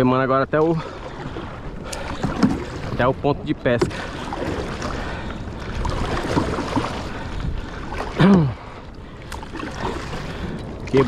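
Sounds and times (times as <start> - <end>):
low rumble of wind and water: 0.0 - 11.0
paddle strokes splashing in water: 0.8 - 11.0.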